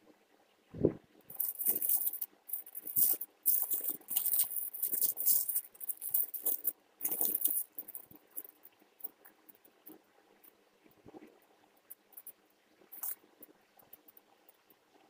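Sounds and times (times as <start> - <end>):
metallic foil crinkling: 1.3 - 8.6, 13.0 - 13.2.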